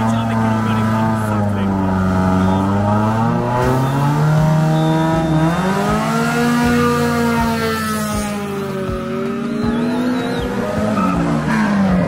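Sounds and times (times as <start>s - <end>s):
race car engines revving: 0.0s - 12.0s.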